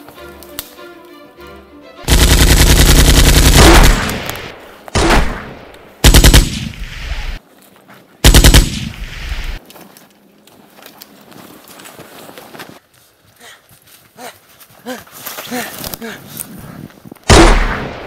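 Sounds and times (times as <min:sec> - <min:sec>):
automatic rifle fire: 0:02.1 - 0:07.4, 0:08.2 - 0:09.6, 0:17.3 - 0:18.0.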